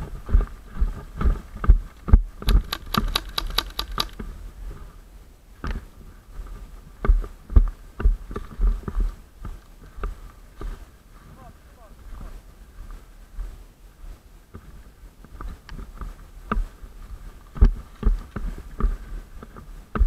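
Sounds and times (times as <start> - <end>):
running footsteps on dry brush: 0.0 - 4.9.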